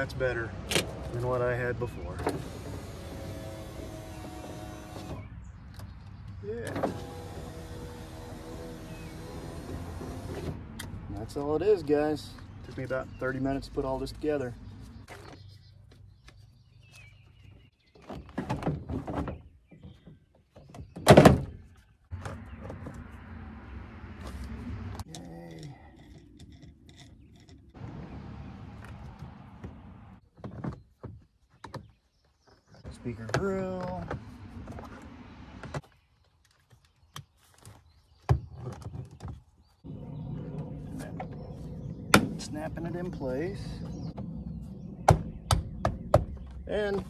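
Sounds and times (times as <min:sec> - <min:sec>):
low rumble: 0:39.9 - 0:46.7.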